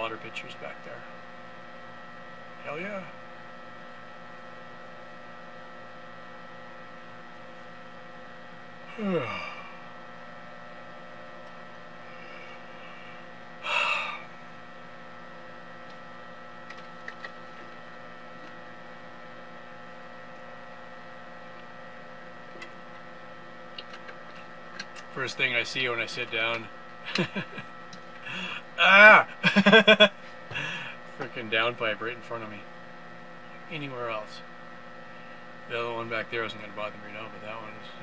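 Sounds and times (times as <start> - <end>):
electrical hum: 0.0 - 38.0
man sighing: 8.9 - 9.8, 13.6 - 14.3, 28.2 - 28.7, 30.5 - 31.0
breathy exhale: 12.0 - 14.3, 30.5 - 31.0.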